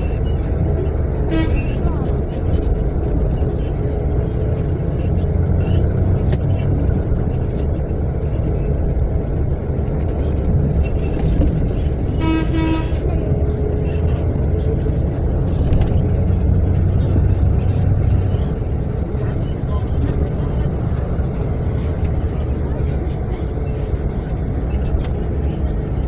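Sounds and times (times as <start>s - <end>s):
bus engine rumble: 0.0s - 26.0s
road noise: 0.0s - 26.0s
vehicle horn honk: 1.3s - 1.8s, 12.2s - 13.1s.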